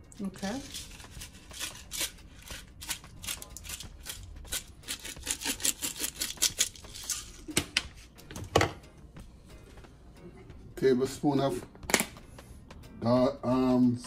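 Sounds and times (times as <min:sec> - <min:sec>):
dry seasoning sprinkling: 0:00.3 - 0:07.5.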